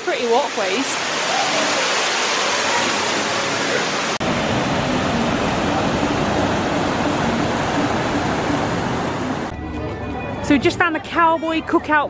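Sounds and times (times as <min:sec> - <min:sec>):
water rushing over rocks: 0:00.0 - 0:09.5.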